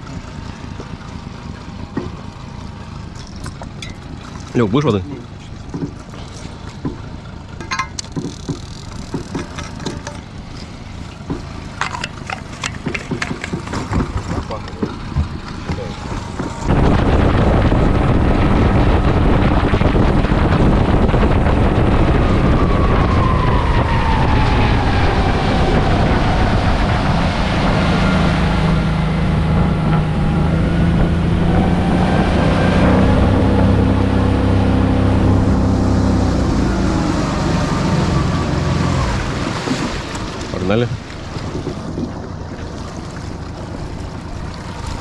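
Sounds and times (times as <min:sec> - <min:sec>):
outboard motor running: 0:00.0 - 0:45.0
wind buffeting microphone: 0:12.8 - 0:45.0.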